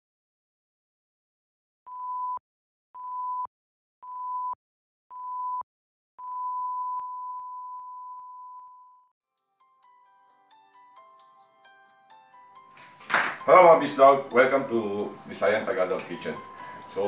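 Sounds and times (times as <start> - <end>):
long held beep: 6.2 - 9.1.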